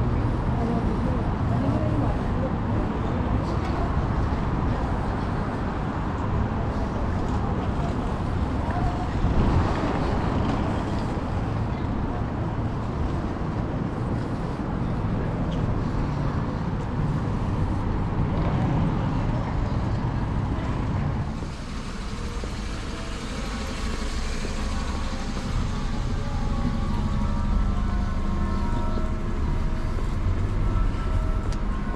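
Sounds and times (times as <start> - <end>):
road traffic noise: 0.0 - 31.9.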